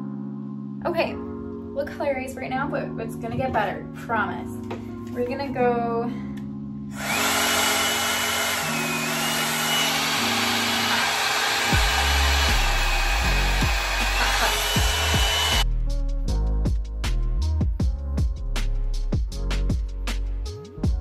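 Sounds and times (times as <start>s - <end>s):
hair dryer running: 6.9s - 15.6s
background music with bass beat: 14.8s - 21.0s.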